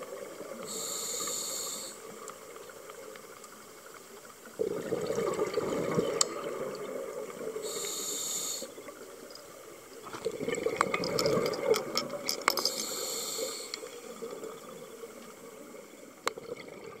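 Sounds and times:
regulator inhalation hiss: 0.5 - 2.2, 7.6 - 8.9, 12.6 - 14.3
diver exhaling gurgling bubbles: 4.6 - 8.1, 10.0 - 15.0.

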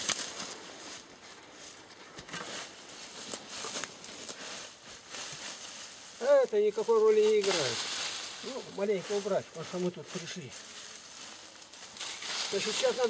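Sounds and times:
shovel scraping in leafy soil: 0.0 - 13.0.

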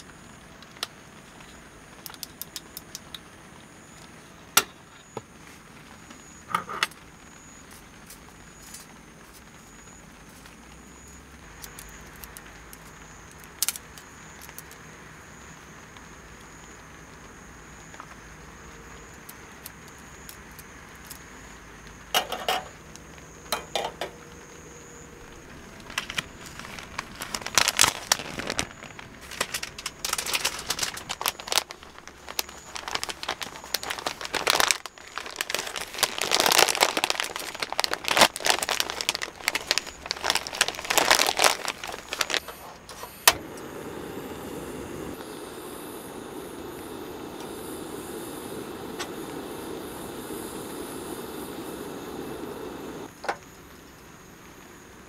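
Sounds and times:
gas stove burner hissing: 0.0 - 55.0
paper packaging crinkling and tearing: 25.2 - 43.4.

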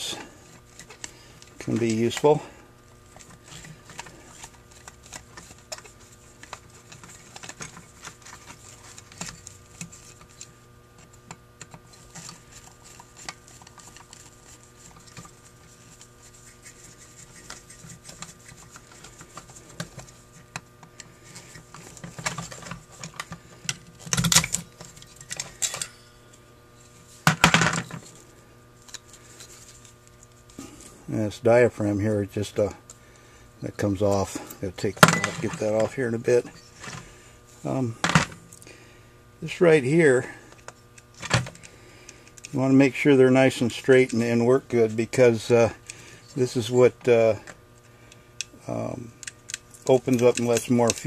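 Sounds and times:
metal parts clicking and clinking: 24.0 - 26.1, 49.2 - 51.0.

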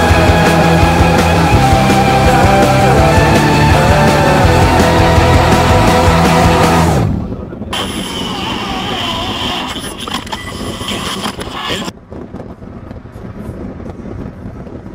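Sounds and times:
rock music: 0.0 - 8.2
wind noise: 4.5 - 14.9.

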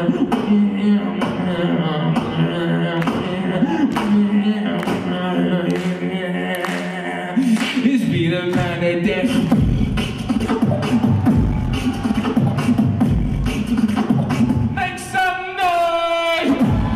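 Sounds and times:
person beatboxing through microphone: 0.0 - 16.9
deep throbbing bass: 8.2 - 14.8, 16.5 - 16.9.

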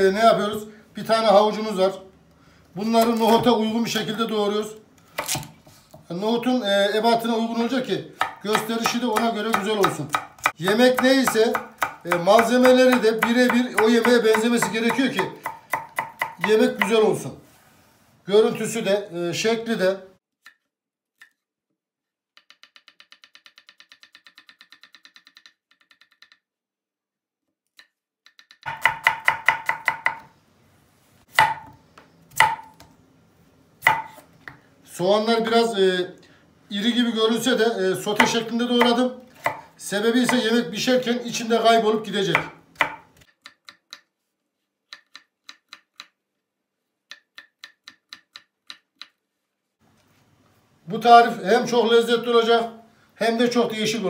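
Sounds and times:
knife chopping on wooden board: 5.2 - 5.5, 8.2 - 17.0, 28.6 - 30.3, 31.3 - 32.9, 33.8 - 34.6, 38.2 - 40.4, 42.3 - 43.8.

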